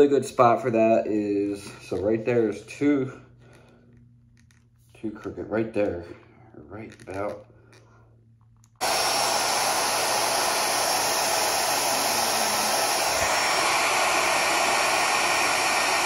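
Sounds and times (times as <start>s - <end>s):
hair dryer blowing: 8.8s - 16.0s.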